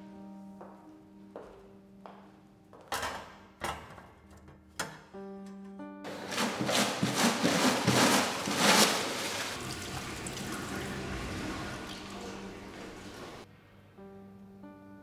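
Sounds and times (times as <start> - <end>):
water rushing in plumbing: 6.1 - 13.5.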